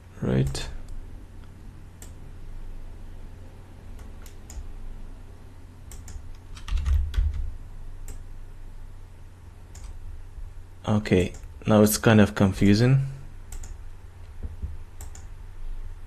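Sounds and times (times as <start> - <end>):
steady low hum: 0.0 - 16.0
keyboard and mouse clicks: 4.0 - 4.6, 5.9 - 8.2, 9.7 - 10.0, 13.5 - 15.3.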